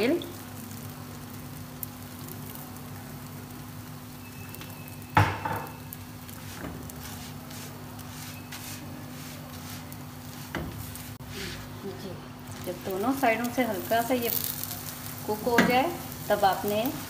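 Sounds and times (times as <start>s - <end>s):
oil sizzling in a pan: 0.0s - 17.0s
spatula scraping and patting: 6.3s - 10.8s.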